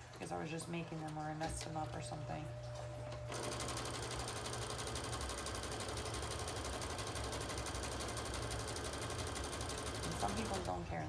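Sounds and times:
sewing machine stitching: 3.3s - 10.8s.

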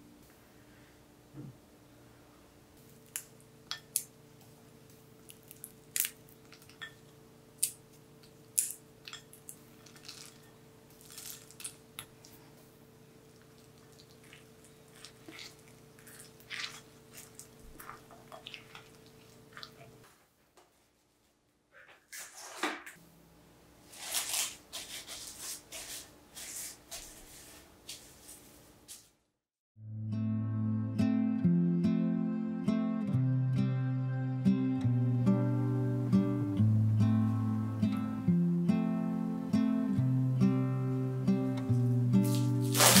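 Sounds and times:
dough squishing: 8.2s - 12.5s, 13.2s - 20.1s, 42.2s - 43.0s.

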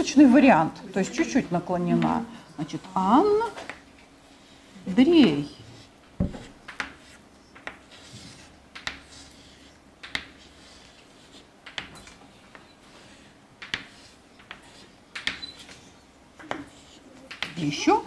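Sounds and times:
pen scratching on paper: 5.2s - 14.9s, 16.5s - 17.0s.

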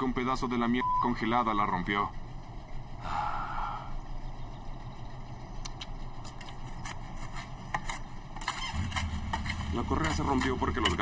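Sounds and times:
heavy machinery engine idling: 0.0s - 11.0s.

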